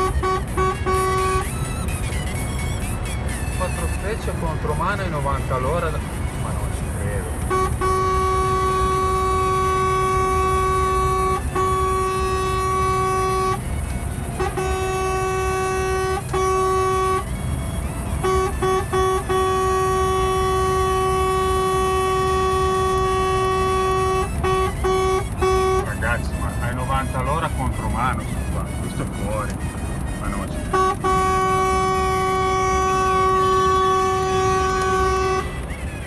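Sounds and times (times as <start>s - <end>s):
vehicle horn blasts: 0.0s - 1.6s, 7.3s - 13.6s, 14.3s - 17.4s, 18.1s - 26.3s, 30.2s - 35.7s
road rumble: 0.0s - 36.0s.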